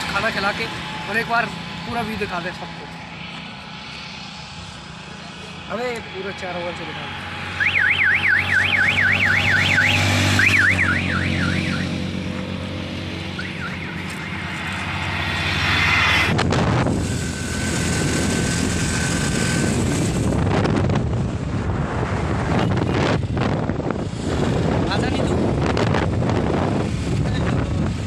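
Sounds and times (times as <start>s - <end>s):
passing vehicle engine hum: 0.0s - 28.0s
road noise: 0.0s - 28.0s
warbling electronic vehicle horn: 7.6s - 12.0s
wind buffeting microphone: 14.6s - 28.0s.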